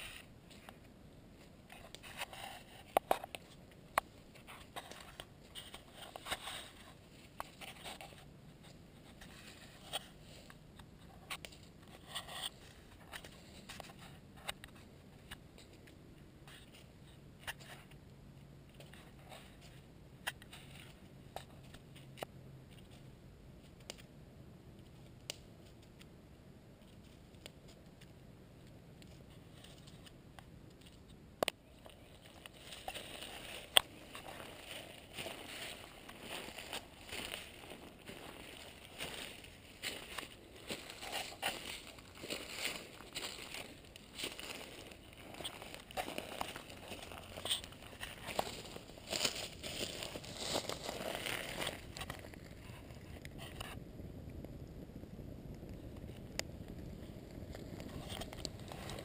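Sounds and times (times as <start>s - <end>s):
campfire crackling and popping: 24.8s - 26.1s, 27.3s - 59.0s.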